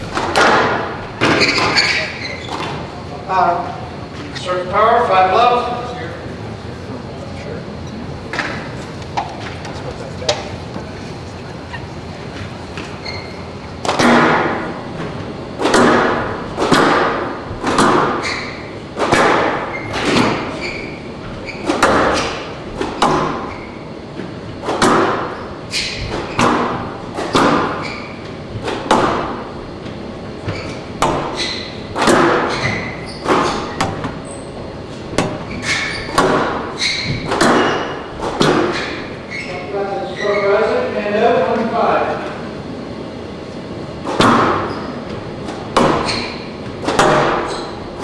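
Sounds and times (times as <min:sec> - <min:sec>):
squash ball hits echoing: 0:00.0 - 0:02.9, 0:13.8 - 0:14.8, 0:15.6 - 0:29.6, 0:30.4 - 0:34.2, 0:35.0 - 0:39.2, 0:44.0 - 0:48.0.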